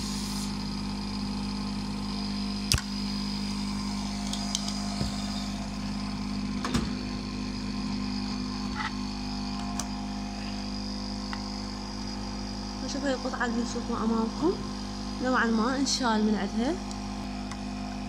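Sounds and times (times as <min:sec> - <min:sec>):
hot air gun blowing: 0:00.0 - 0:00.7, 0:02.7 - 0:05.8.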